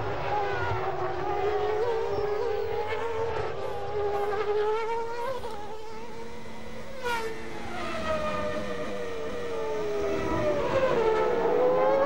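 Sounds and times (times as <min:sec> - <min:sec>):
race car engine screaming: 0:05.4 - 0:12.0.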